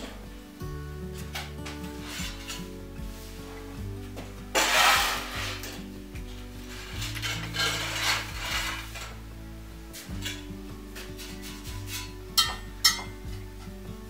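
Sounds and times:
broom sweeping wooden floor: 1.2s - 9.2s.

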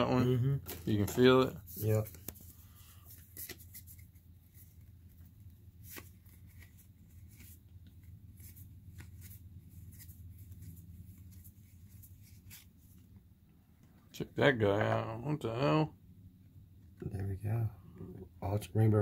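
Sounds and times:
cards rustling and snapping: 0.6s - 13.1s.

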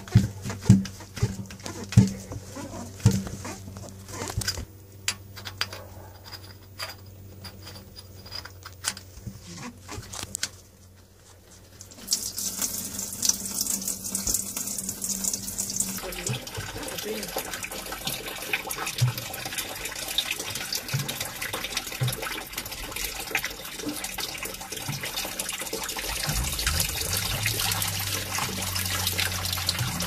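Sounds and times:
water stream running out: 11.9s - 30.0s.

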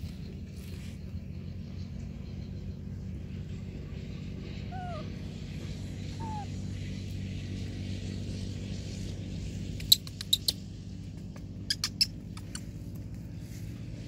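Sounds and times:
steady low hum: 0.0s - 14.0s
baby monkey squeaking: 4.7s - 5.0s, 6.2s - 6.5s, 9.8s - 10.6s, 11.7s - 12.8s.

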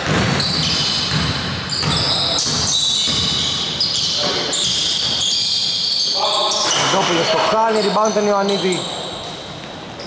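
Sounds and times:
basketball bouncing on wooden court: 0.0s - 5.4s
sneakers squeaking: 0.0s - 10.0s.

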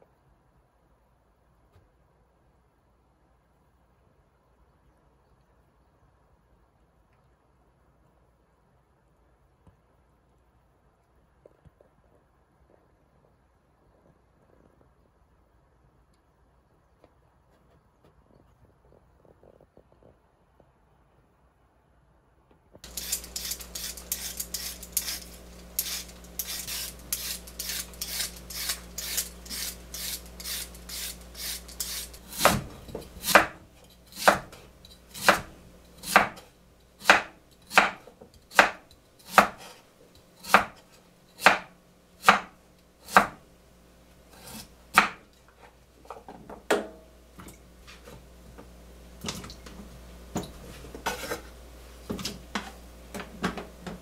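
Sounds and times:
peeler scraping carrot: 22.8s - 43.4s, 44.3s - 45.8s
cleaver chopping on wooden board: 32.3s - 33.6s, 34.2s - 34.6s, 35.2s - 36.4s, 37.0s - 39.7s, 40.4s - 40.8s, 41.4s - 42.5s, 43.1s - 43.4s, 45.0s - 45.2s.

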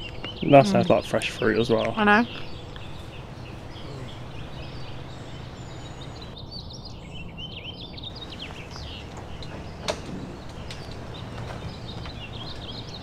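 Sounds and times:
low background rumble: 0.0s - 6.4s
small birds chirping: 0.0s - 13.0s.

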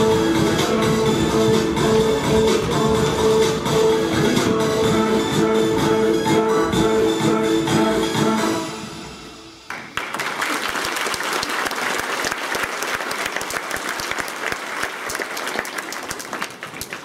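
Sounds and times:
dance music: 0.0s - 9.7s
children applauding: 9.7s - 17.0s.

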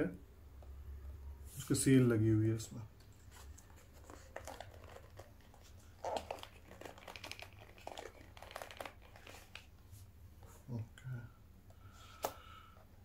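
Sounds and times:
packaging crinkling: 3.0s - 9.7s.

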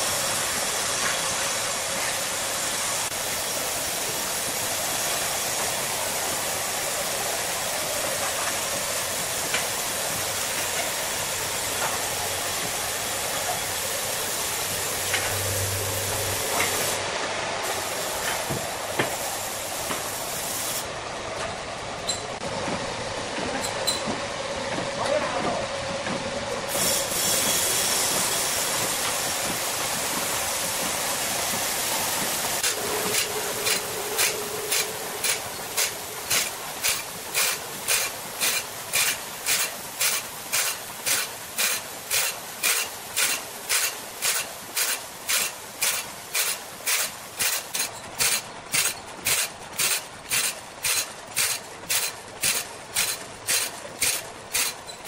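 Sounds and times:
abrasive wheel hissing: 0.0s - 20.9s, 26.7s - 55.0s
grinding saw blade teeth: 32.6s - 55.0s.

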